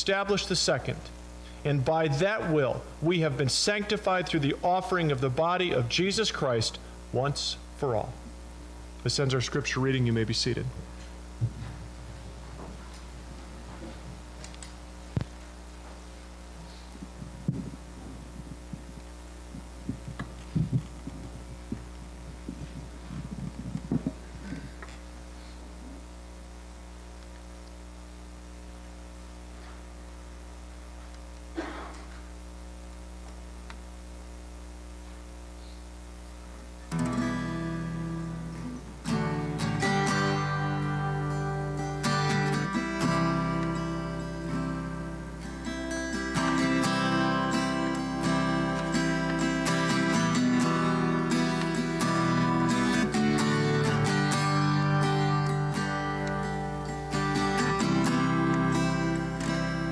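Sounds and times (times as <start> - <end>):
steady hum: 0.0 - 59.9
acoustic guitar strumming: 1.7 - 8.0, 36.9 - 59.9
people sitting in wooden pews: 31.6 - 32.3.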